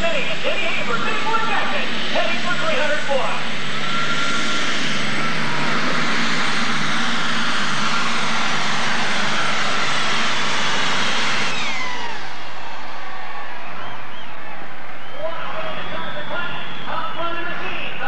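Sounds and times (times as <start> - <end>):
tractor engine with high whine: 0.0 - 18.0.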